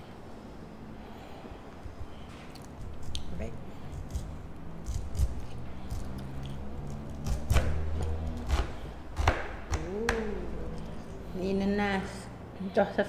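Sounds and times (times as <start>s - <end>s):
knife slicing pineapple: 2.8s - 10.4s.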